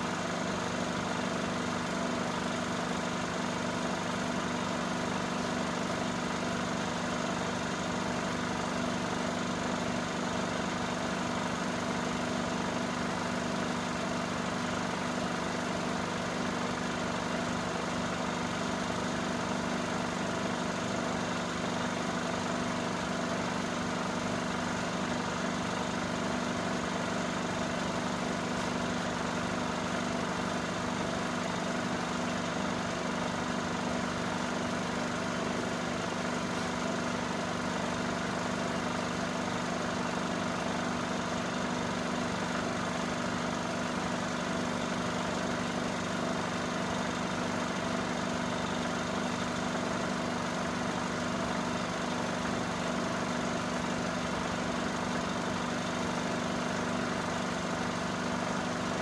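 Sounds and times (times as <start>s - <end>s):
film projector running: 0.0s - 59.0s.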